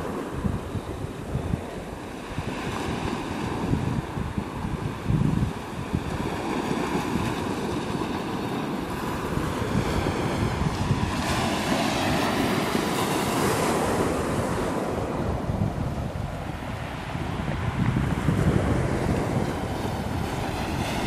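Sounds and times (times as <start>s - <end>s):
wind rumble on microphone: 0.0s - 21.0s
waves breaking on pebble beach: 5.2s - 21.0s.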